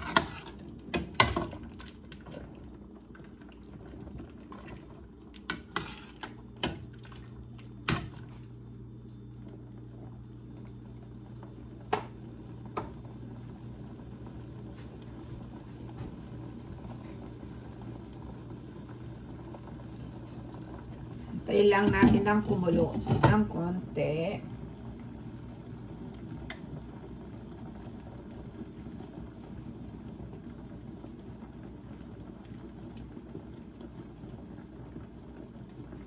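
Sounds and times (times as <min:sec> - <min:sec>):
ladle stirring soup: 0:00.0 - 0:09.2
steady low hum: 0:00.0 - 0:33.3.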